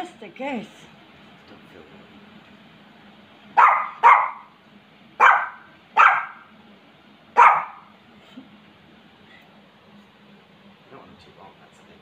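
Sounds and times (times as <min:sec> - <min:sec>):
small dog yapping: 0:03.6 - 0:04.6, 0:05.2 - 0:06.5, 0:07.4 - 0:07.9.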